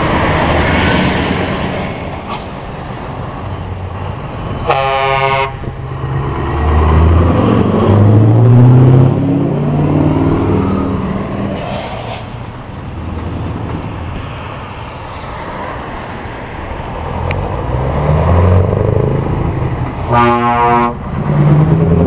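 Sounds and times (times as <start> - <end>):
truck engine passing by: 0.0 - 22.0
truck horn blast: 4.6 - 5.7, 20.0 - 21.0.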